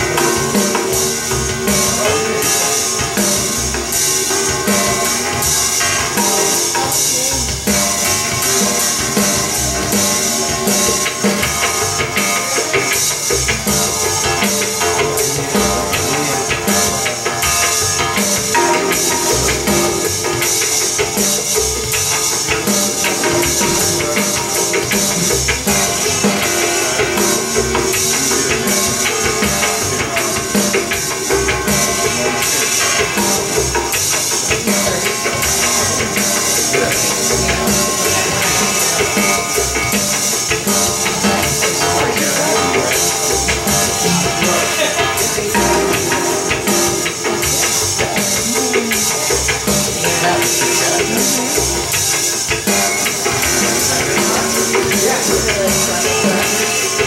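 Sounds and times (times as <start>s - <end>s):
electronic music with drum beat: 0.0s - 57.0s.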